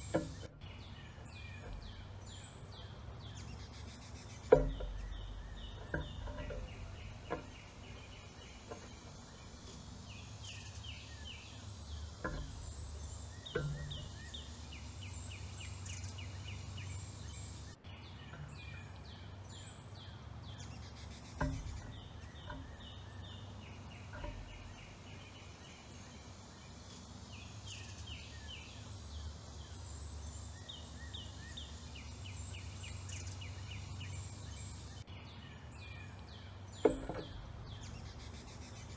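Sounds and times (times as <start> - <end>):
sharp knocks: 0.0 - 0.6, 4.3 - 9.9, 11.9 - 14.6, 21.3 - 23.0, 36.8 - 37.8
low outdoor rumble: 0.0 - 38.9
songbird singing: 0.0 - 38.9.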